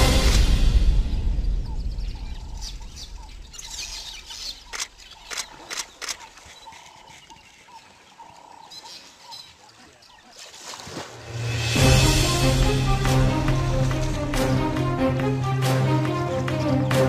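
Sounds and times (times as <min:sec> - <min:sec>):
background music: 0:00.0 - 0:03.4, 0:11.2 - 0:17.0
birds calling: 0:01.2 - 0:11.0
sharp clicks: 0:04.6 - 0:06.6.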